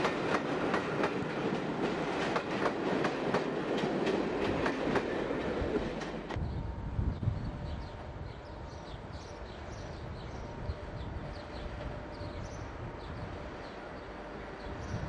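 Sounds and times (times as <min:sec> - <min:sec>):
small birds chirping: 0:07.6 - 0:15.0.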